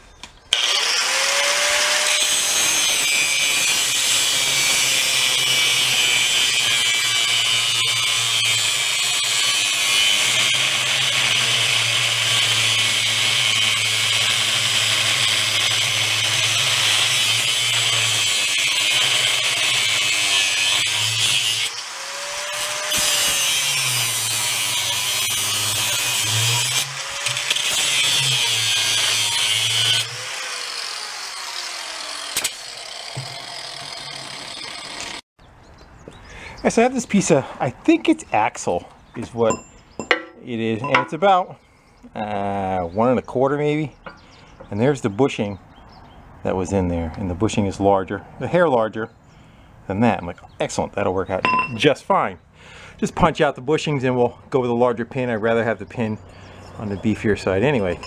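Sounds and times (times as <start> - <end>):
angle grinder cutting steel: 0.5 - 35.2, 57.4 - 58.0.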